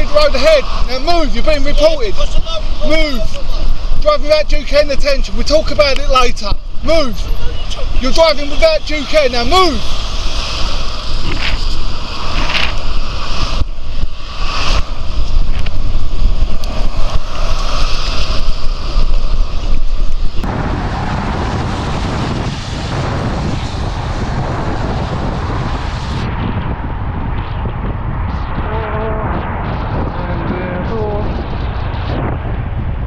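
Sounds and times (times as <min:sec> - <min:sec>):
wind buffeting microphone: 0:00.0 - 0:33.0
tyre hiss on wet road: 0:09.8 - 0:23.8.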